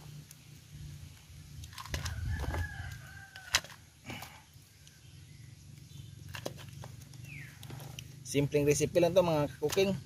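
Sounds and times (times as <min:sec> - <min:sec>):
rooster crowing: 0:02.0 - 0:03.7.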